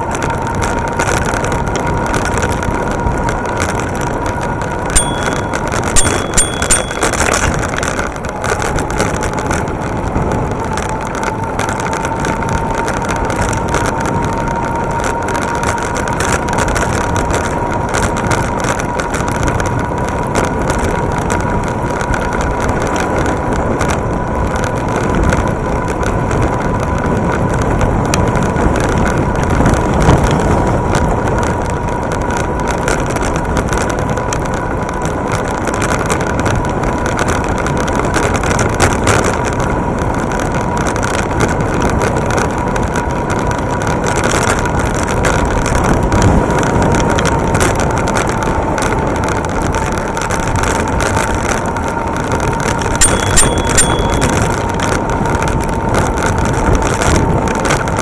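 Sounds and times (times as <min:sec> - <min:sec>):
tyre road and wind rumble: 0:00.0 - 0:58.0
thin steady whine: 0:00.3 - 0:16.4, 0:52.8 - 0:55.2
brief high tone: 0:05.0 - 0:07.6, 0:53.0 - 0:54.6.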